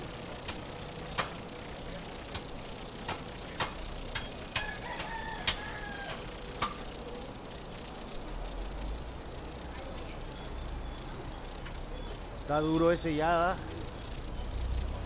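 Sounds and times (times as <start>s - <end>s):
drawn-out pitched call: 4.5s - 6.6s.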